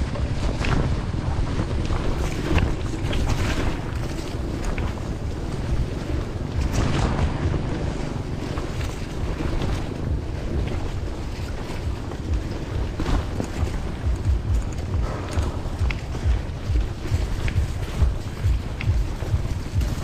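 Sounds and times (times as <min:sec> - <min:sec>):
bicycle tyres crunching on gravel: 0:00.0 - 0:20.0
stones clicking against bicycle: 0:00.0 - 0:20.0
wind buffeting microphone: 0:00.0 - 0:20.0.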